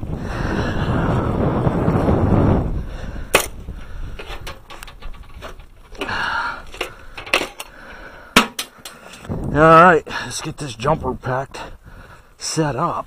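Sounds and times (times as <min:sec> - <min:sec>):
metal tools clanking: 0:04.2 - 0:09.3.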